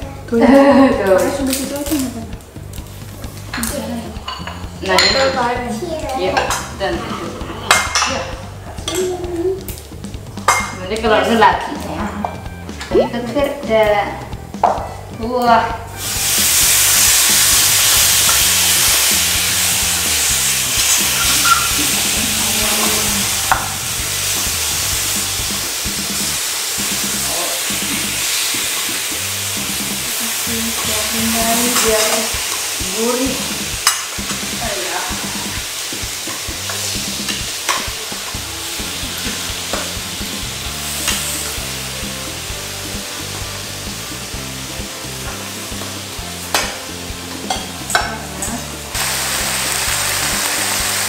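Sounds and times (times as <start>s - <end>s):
faint background music: 0.0s - 51.0s
meat sizzling on grill pan: 15.8s - 51.0s.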